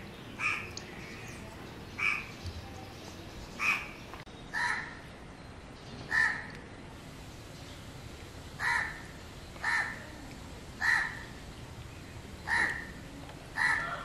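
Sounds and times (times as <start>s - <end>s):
bird calling: 0.0s - 5.1s, 8.6s - 10.2s, 10.8s - 14.0s.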